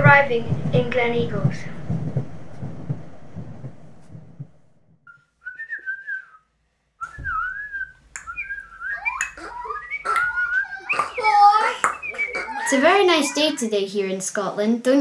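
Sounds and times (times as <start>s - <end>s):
low noise: 0.0s - 4.9s
whistle with wavering pitch: 5.1s - 12.7s
overlapping sliding whistles: 5.1s - 12.8s.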